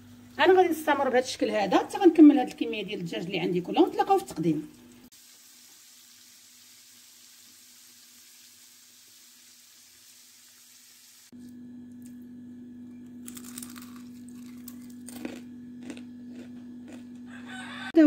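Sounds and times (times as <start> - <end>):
chicken sizzling in oil: 4.8 - 11.3.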